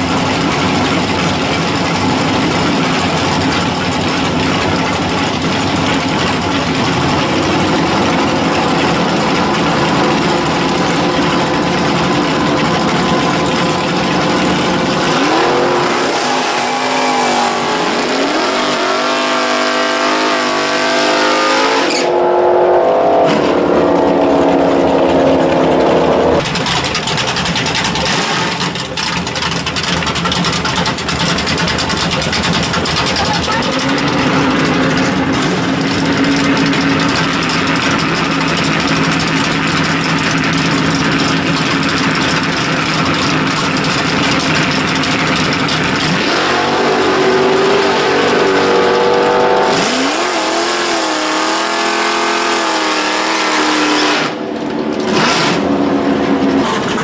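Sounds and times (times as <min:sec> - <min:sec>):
racing engines roaring: 0:00.0 - 0:57.0
engine revving up and down: 0:06.7 - 0:26.7, 0:33.0 - 0:38.4, 0:42.4 - 0:57.0.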